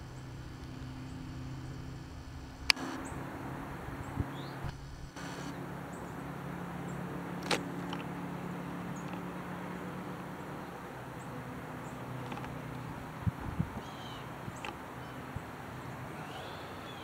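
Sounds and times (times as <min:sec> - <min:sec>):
distant traffic hum: 0:00.0 - 0:17.0
sharp click: 0:07.4 - 0:08.1
faint high chirps: 0:16.1 - 0:17.0.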